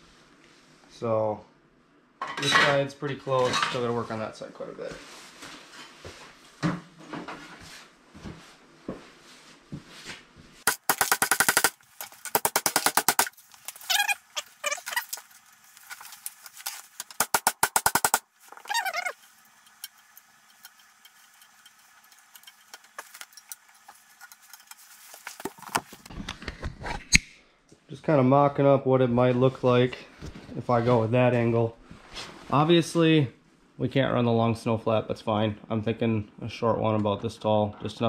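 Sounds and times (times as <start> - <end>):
rapid ratchet clicking: 10.7 - 13.3, 17.0 - 18.2
short squeaks: 13.8 - 15.2, 18.5 - 19.2.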